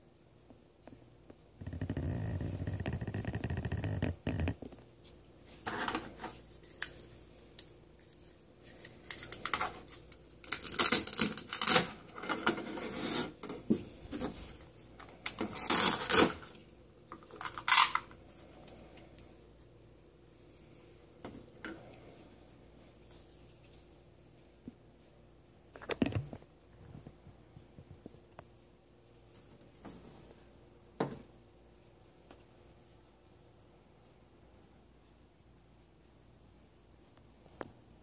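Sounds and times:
velcro tearing: 0:10.4 - 0:12.2, 0:15.4 - 0:16.6, 0:17.3 - 0:18.1.

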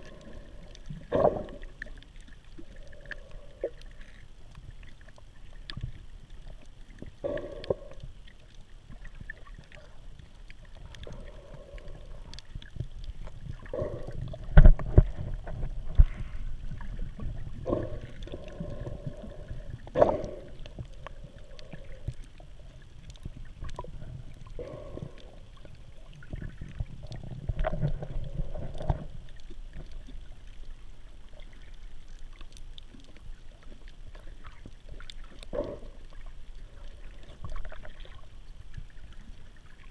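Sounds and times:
water sloshing and gurgling: 0:00.0 - 0:39.9
low muffled rumble: 0:03.0 - 0:31.2.

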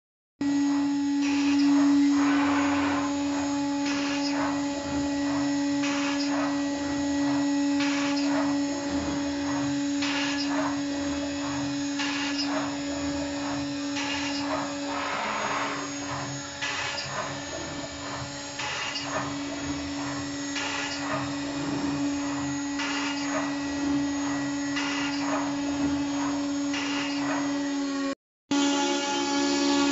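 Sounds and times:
router spindle whine: 0:00.4 - 0:29.9.

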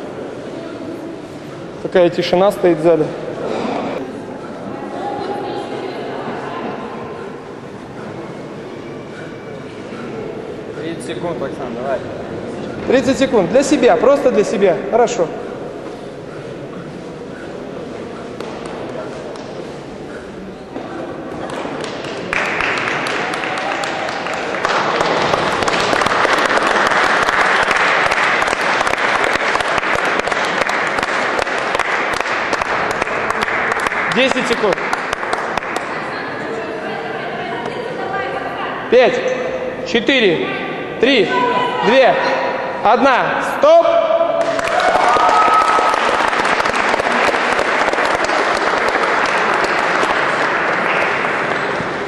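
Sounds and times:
audience applauding: 0:21.4 - 0:36.0, 0:44.4 - 0:52.0
audience cheering: 0:44.4 - 0:50.2.

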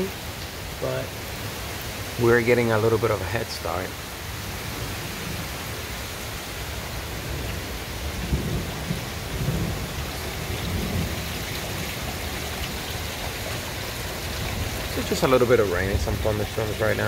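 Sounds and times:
steady rain: 0:00.0 - 0:17.0
thunder rumbling: 0:07.2 - 0:17.0.

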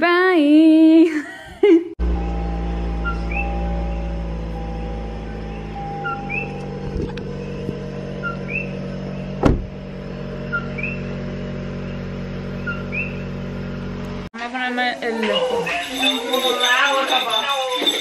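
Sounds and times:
car engine idling: 0:02.0 - 0:14.3
two-note chirping call: 0:03.0 - 0:08.9, 0:12.6 - 0:13.3
car door shutting: 0:06.1 - 0:08.7, 0:09.3 - 0:11.0.

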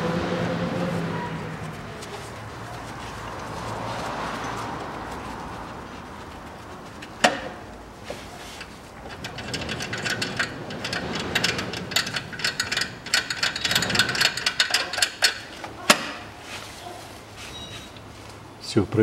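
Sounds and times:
metal parts and tools rattling: 0:06.6 - 0:16.3.

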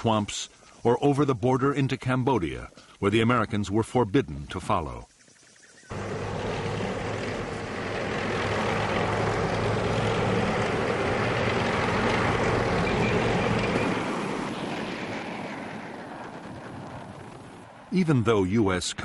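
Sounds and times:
armoured vehicle engine and tracks: 0:05.9 - 0:19.0.

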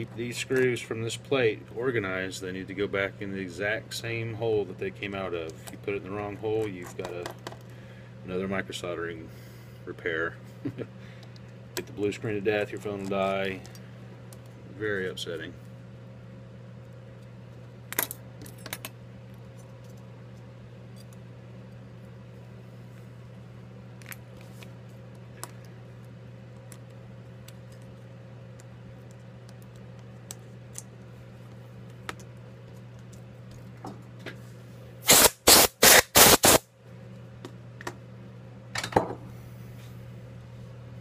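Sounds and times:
steady low hum: 0:00.0 - 0:41.0
loud noise bursts: 0:35.1 - 0:36.6.

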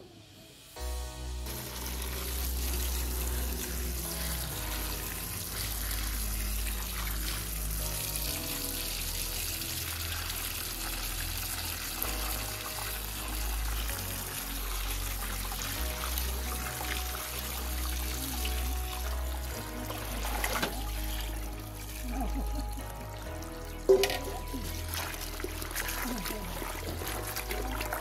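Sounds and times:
background music with slow bass: 0:00.0 - 0:28.0
water splashing onto leaves in bowl: 0:23.8 - 0:28.0.

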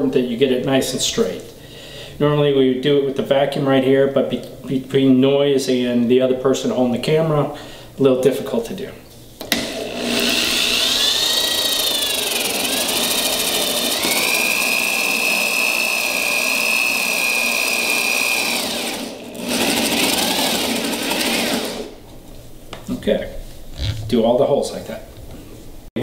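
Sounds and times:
electric drill boring wood: 0:09.5 - 0:22.0.

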